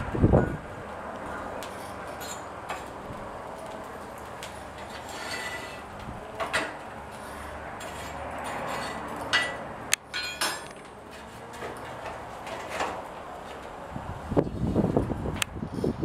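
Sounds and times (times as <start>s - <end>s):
metal clinks on iron hearth: 1.3s - 3.0s, 7.8s - 10.8s
tools scraping in coal: 1.6s - 2.9s, 4.6s - 13.0s.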